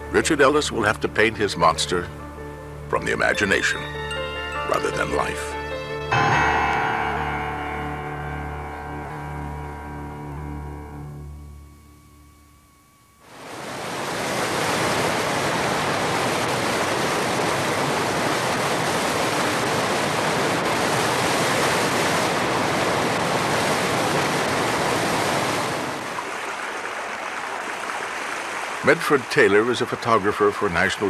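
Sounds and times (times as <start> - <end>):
rushing water: 2.9 - 8.7, 13.3 - 31.0.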